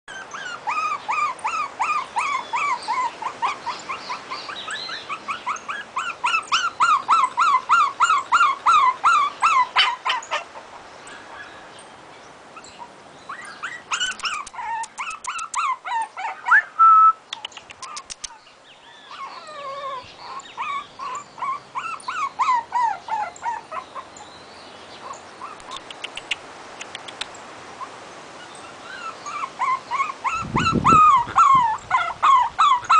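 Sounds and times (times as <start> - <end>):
puppy whimpering and yelping: 0.1 - 11.5, 12.6 - 24.2, 25.0 - 26.4, 27.8 - 32.9
sharp clicks: 17.3 - 18.4, 25.6 - 27.4.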